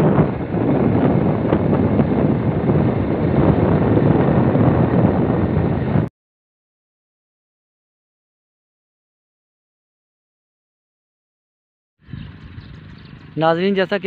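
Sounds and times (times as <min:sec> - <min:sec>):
moving road vehicle noise: 0:00.0 - 0:06.1, 0:12.0 - 0:14.0
wind rushing over microphone: 0:00.0 - 0:06.1, 0:12.0 - 0:14.0.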